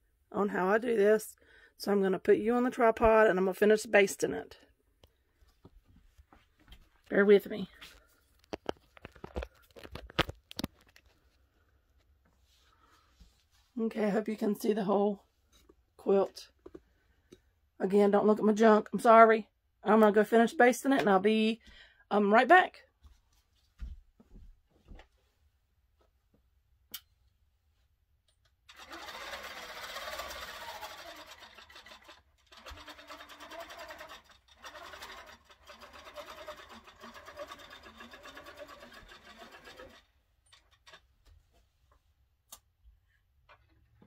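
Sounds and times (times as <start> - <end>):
quilting machine stitching: 28.7 - 41.1.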